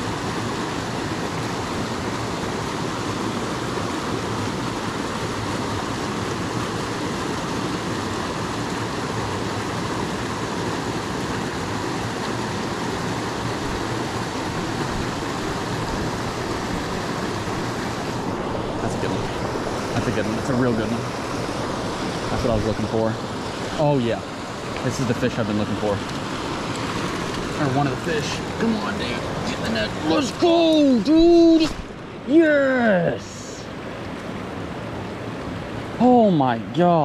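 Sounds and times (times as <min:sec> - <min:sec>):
creek water rushing over rocks: 0:00.0 - 0:37.0.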